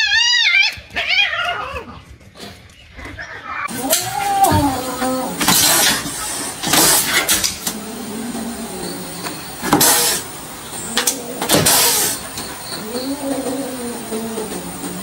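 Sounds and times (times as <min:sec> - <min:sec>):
cat hissing: 0:03.6 - 0:15.0
low wavering growl: 0:07.6 - 0:09.2, 0:12.8 - 0:15.0.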